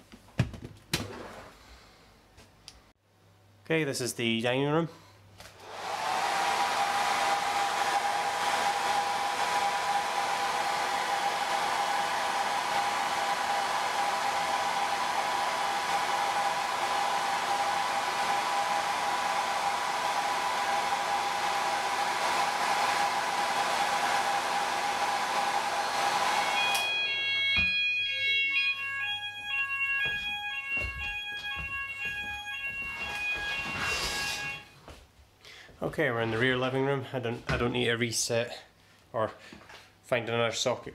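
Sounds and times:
hair dryer blowing: 5.5s - 34.7s
fire alarm beeping tones: 26.5s - 34.8s.

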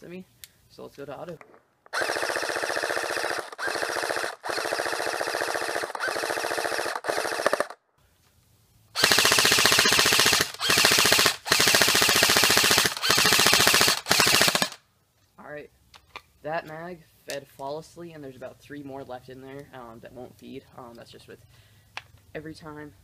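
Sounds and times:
airsoft gun firing bursts: 1.9s - 7.8s, 9.0s - 14.8s.

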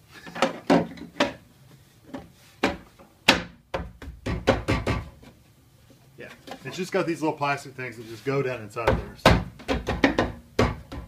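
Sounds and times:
plastic knocks and snaps: 8.9s - 11.0s.

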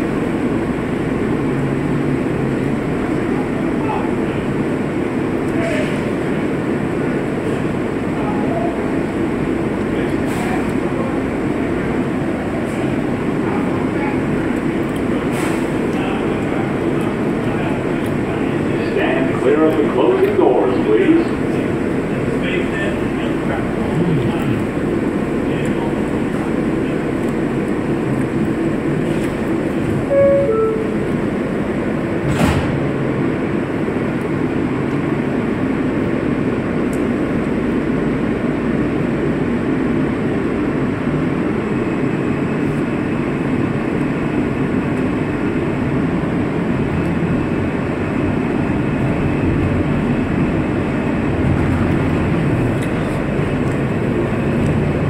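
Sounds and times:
subway train rumble: 0.0s - 55.0s
faint high whine: 30.1s - 31.2s
two-note door chime: 30.1s - 31.2s.

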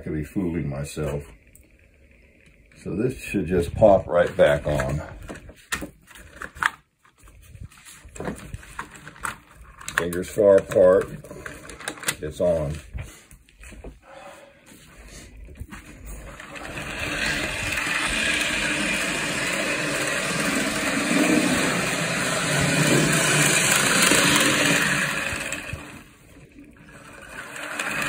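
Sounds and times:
wheels rolling on rails: 0.0s - 5.5s, 15.4s - 28.0s
model train motor whirring: 16.1s - 28.0s.

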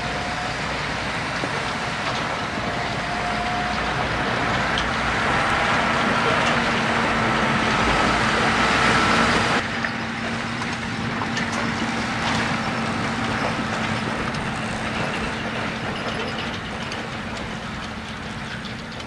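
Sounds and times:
tractor diesel engine running: 0.0s - 19.0s
trailers rattling: 0.0s - 19.0s.

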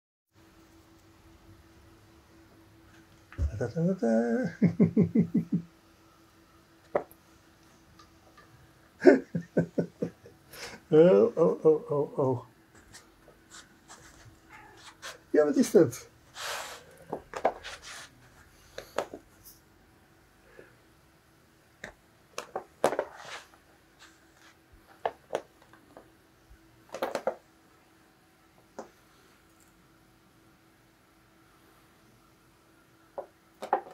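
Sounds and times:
faint steady hum: 0.4s - 33.9s
cat scratching at twine on carpet: 12.8s - 15.3s, 16.3s - 19.0s, 22.8s - 25.2s.

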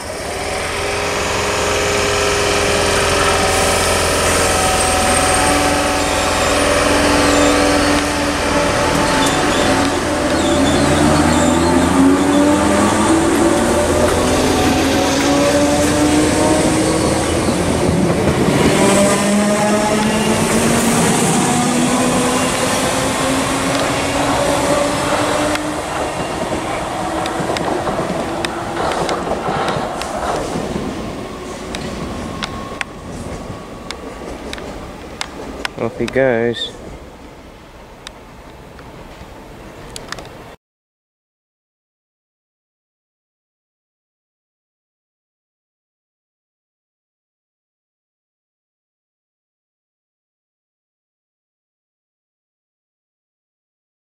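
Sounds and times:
electric train humming: 0.0s - 40.6s
wheels clicking over rail joints: 25.1s - 31.0s.

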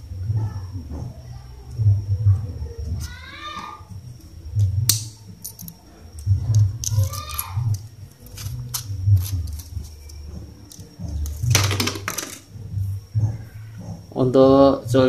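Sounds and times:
metal parts clicking and scraping: 4.9s - 12.4s.

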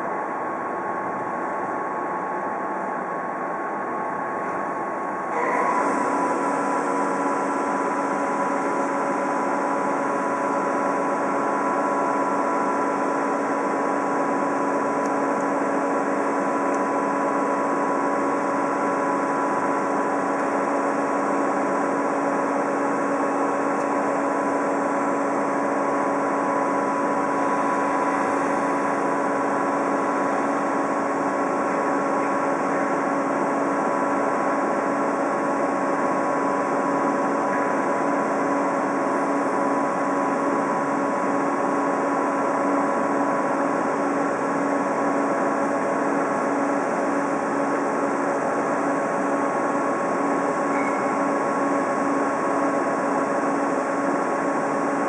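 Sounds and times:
electric train humming: 4.9s - 34.9s.

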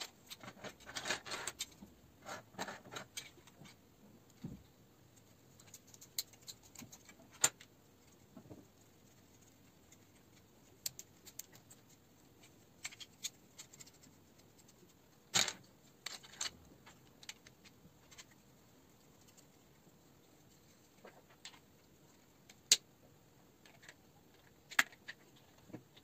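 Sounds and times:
plastic pieces clicking and clacking: 0.2s - 3.8s, 15.3s - 18.4s.

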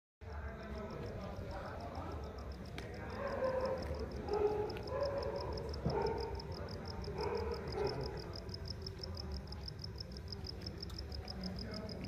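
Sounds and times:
faint distant voices: 0.2s - 12.0s
insect chirping: 0.2s - 12.0s.

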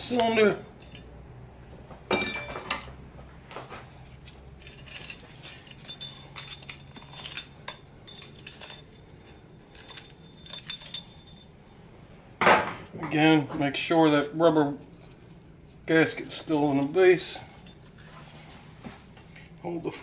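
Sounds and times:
metal engine parts clinking: 0.0s - 1.2s, 2.1s - 3.0s, 4.0s - 11.8s, 14.9s - 18.2s.

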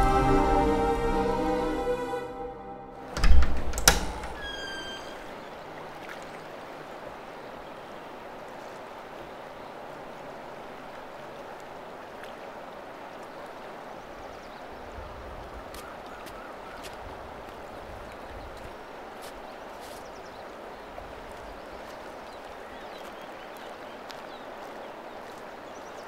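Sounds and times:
door squeak: 3.0s - 5.4s
outdoor ambience hiss: 3.0s - 17.9s
wooden door knocks: 3.2s - 4.4s.

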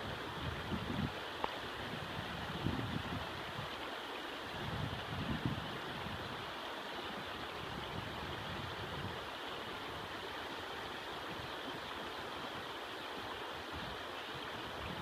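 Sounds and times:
river running over rocks: 0.0s - 15.0s.

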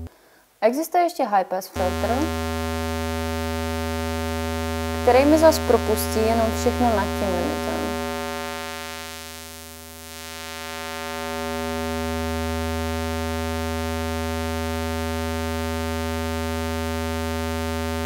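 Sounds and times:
synthesizer square wave tone: 1.8s - 18.0s.

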